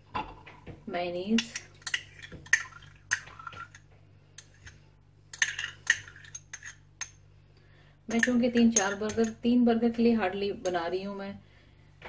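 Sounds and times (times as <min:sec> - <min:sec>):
spoon scraping and clinking dish: 0:04.4 - 0:07.2, 0:08.1 - 0:09.4.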